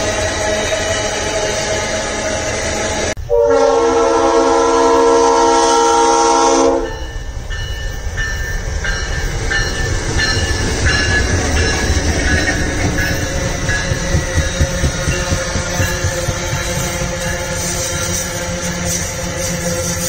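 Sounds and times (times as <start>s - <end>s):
locomotive air horn blast: 0.0s - 7.0s
wheels clacking over rail joints: 7.5s - 20.0s
freight wagons rolling on track: 7.8s - 20.0s.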